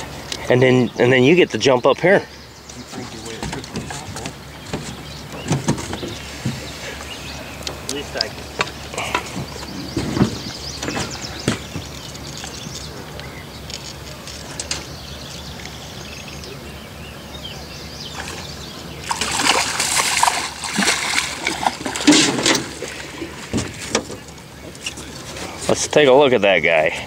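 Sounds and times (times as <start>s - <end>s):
fish splashing at the surface: 19.0s - 23.5s.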